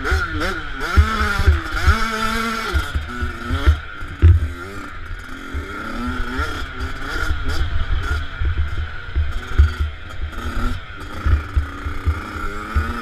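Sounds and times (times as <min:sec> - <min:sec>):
motocross bike engine revving: 0:00.0 - 0:13.0
sharp thump: 0:04.2 - 0:04.6.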